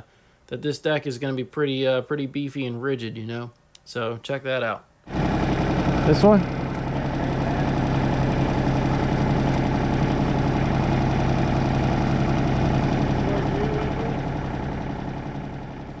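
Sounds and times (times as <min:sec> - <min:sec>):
diesel engine idling: 0:05.1 - 0:16.0.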